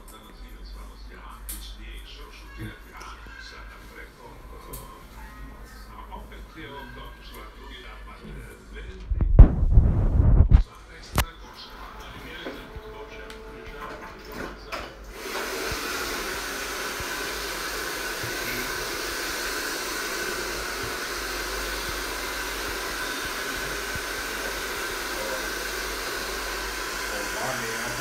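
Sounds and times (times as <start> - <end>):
hair dryer blowing: 9.4 - 10.6, 15.1 - 28.0.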